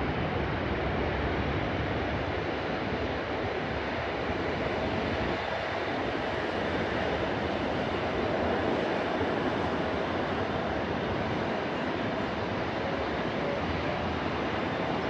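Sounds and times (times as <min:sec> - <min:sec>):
distant jet engines roaring: 0:00.0 - 0:15.0
road traffic noise: 0:04.1 - 0:15.0.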